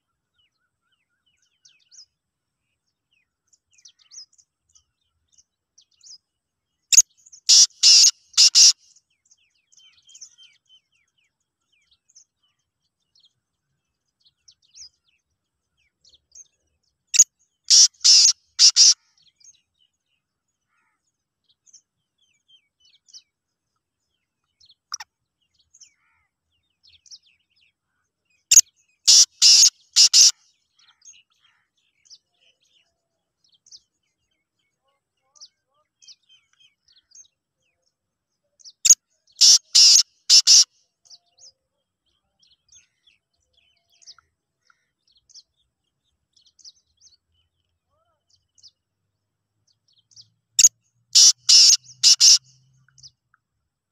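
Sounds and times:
francolin calling: 6.9 - 8.8, 17.7 - 19.0, 28.5 - 30.4, 39.4 - 40.7, 50.6 - 52.5.

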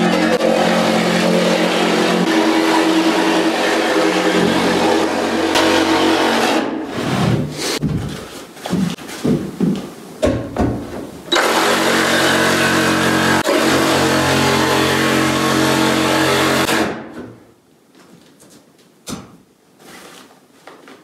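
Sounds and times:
power tool motor: 11.3 - 16.9.

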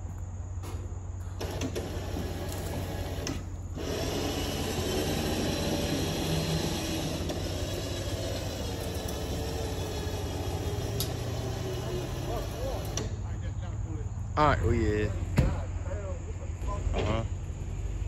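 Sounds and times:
electric winch running: 1.3 - 13.2.

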